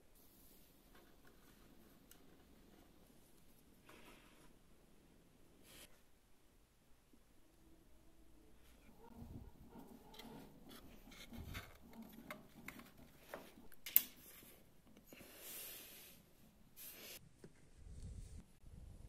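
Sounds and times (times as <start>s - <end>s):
rubbing and scraping: 8.7s - 14.7s.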